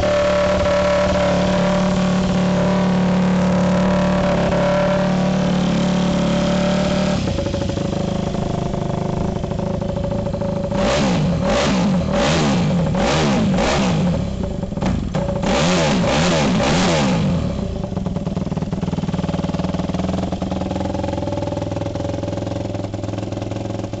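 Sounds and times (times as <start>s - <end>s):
motorcycle engine idling and revving: 0.0s - 24.0s.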